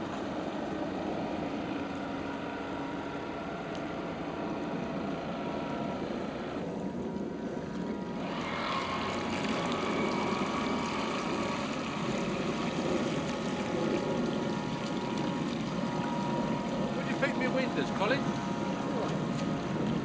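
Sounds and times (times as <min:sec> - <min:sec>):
model boat motor whine: 0:00.0 - 0:20.0
water rushing: 0:06.7 - 0:20.0.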